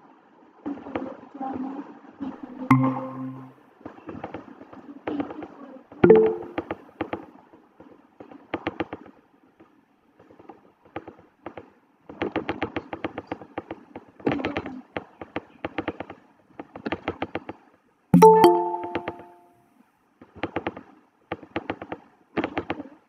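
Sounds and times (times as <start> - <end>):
short chime of ringing tones: 2.7 - 3.5, 6.0 - 6.6, 18.2 - 19.5.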